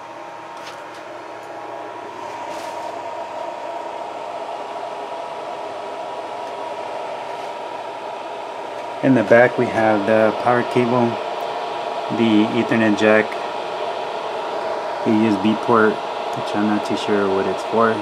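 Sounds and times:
cooling fans whirring: 0.0 - 18.0.

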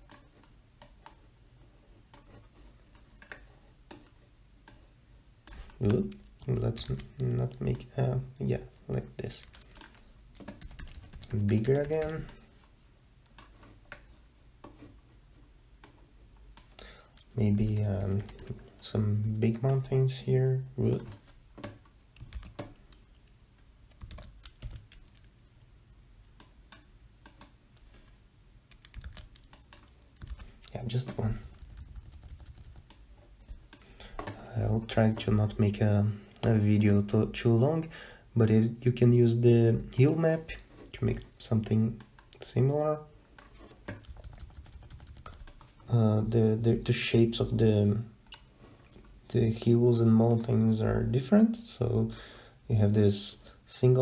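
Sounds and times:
low steady hum: 0.0 - 54.0
computer mouse clicks: 5.4 - 7.9, 9.4 - 12.4, 15.8 - 18.6, 26.2 - 27.9, 28.7 - 30.7, 43.4 - 45.8.

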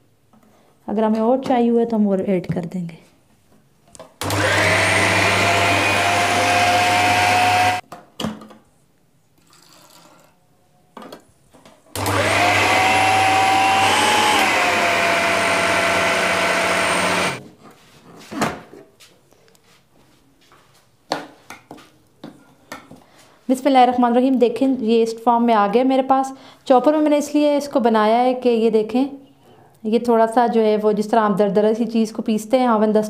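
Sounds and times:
food chopper motor whirring: 4.2 - 7.8, 12.0 - 17.4.

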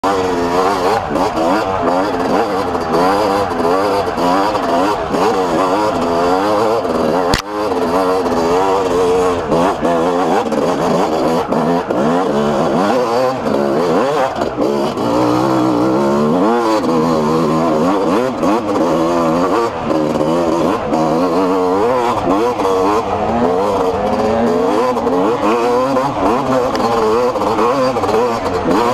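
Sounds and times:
two-stroke motorcycle engine: 0.0 - 28.9.

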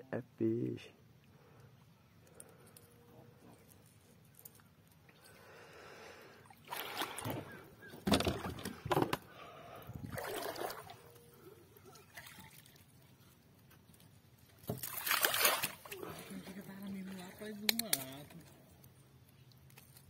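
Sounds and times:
water splashing against kayak hull: 6.6 - 9.3, 14.6 - 16.2.

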